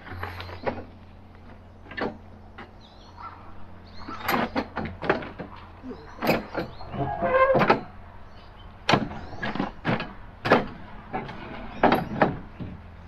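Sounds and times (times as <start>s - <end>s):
folding table legs knocking: 8.9s - 12.8s.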